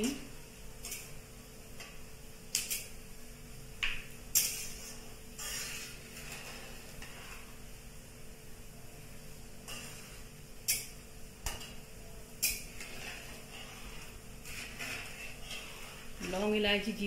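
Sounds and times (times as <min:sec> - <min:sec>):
spices frying in hot oil: 0:00.0 - 0:17.0
metal spatula scraping metal pan: 0:04.3 - 0:07.6, 0:09.6 - 0:11.7, 0:12.4 - 0:17.0.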